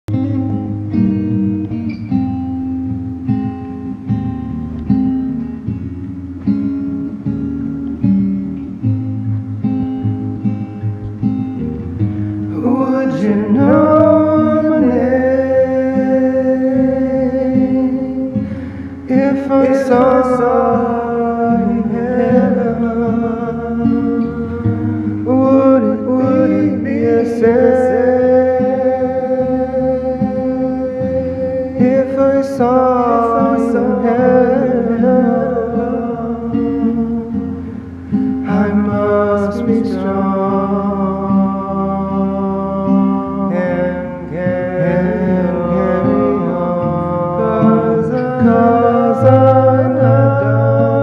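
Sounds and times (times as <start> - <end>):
acoustic guitar finger-picking: 0.0 - 51.0.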